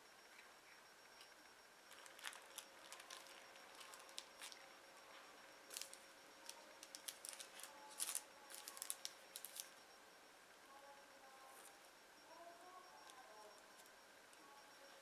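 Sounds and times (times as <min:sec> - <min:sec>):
plastic wrap crinkling: 0:01.9 - 0:04.6, 0:05.7 - 0:09.7.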